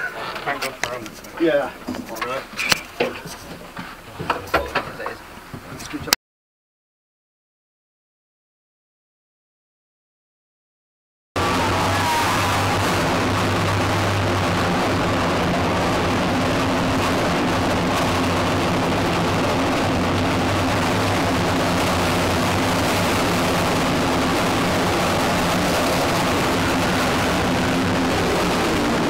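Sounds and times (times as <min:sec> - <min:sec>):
diesel engine running: 0:11.4 - 0:29.0
low droning hum: 0:11.4 - 0:29.0.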